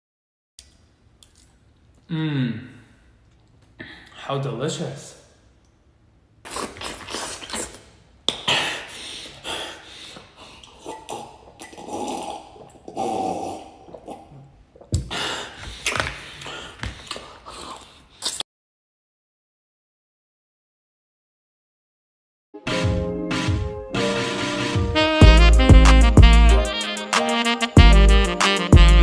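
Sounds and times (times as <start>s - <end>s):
wet slurping and smacking: 6.4s - 8.0s, 10.1s - 14.9s, 15.7s - 18.4s
man gulping from a glass: 6.5s - 8.8s, 10.5s - 15.2s.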